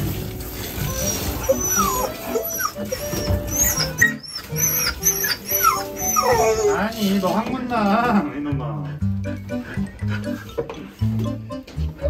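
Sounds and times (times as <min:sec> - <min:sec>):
dog whining and crying: 0:00.7 - 0:07.1.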